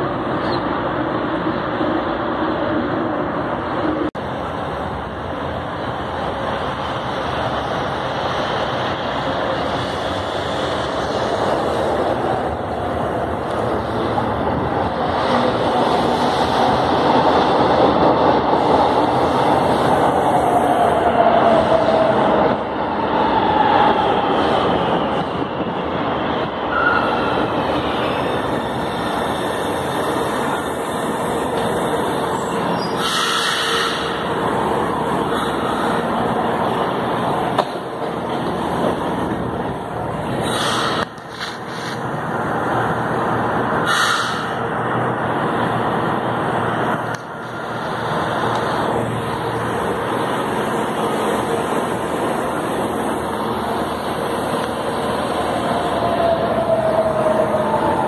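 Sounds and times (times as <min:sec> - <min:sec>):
train wheels rumbling on rails: 0:00.0 - 0:58.0.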